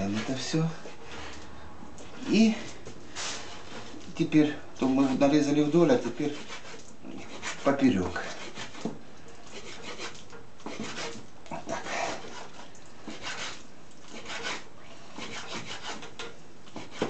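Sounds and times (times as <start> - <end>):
knife chopping on wooden board: 15.2 - 17.0.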